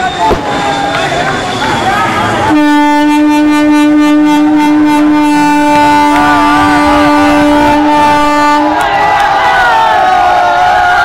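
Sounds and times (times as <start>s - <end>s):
train horn long blast: 2.0s - 9.2s
people shouting: 5.9s - 11.0s.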